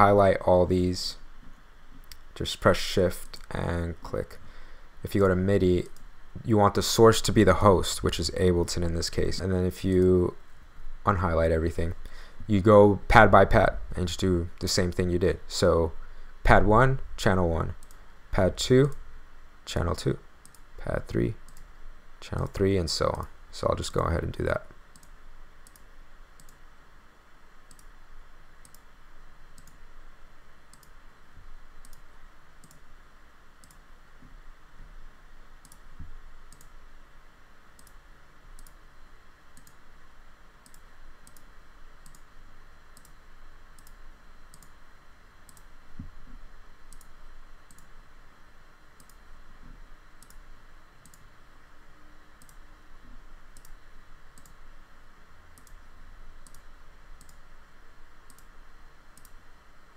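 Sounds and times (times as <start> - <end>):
computer mouse clicking: 17.8 - 18.0, 20.4 - 20.6, 21.5 - 21.7, 24.9 - 26.6, 27.7 - 27.9, 28.6 - 28.8, 29.6 - 29.8, 30.7 - 31.0, 31.8 - 32.0, 32.6 - 32.8, 33.6 - 33.8, 35.6 - 35.8, 36.5 - 36.7, 37.8 - 38.0, 38.6 - 38.8, 39.6 - 39.8, 40.6 - 42.3, 43.0 - 43.2, 43.8 - 44.7, 45.5 - 45.7, 46.9 - 47.1, 47.7 - 47.9, 49.0 - 49.2, 50.2 - 50.4, 51.0 - 51.3, 52.4 - 52.6, 53.5 - 53.8, 54.4 - 54.6, 55.6 - 55.8, 56.4 - 57.4, 58.3 - 58.5, 59.2 - 59.4.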